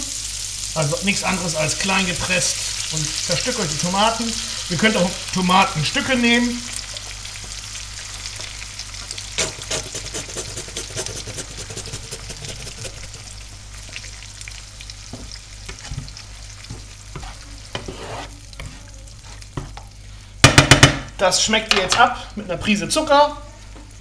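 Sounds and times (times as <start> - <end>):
sauce sizzling in a frying pan: 0.0 - 11.3, 12.3 - 20.5
spatula stirring sauce: 8.3 - 20.0.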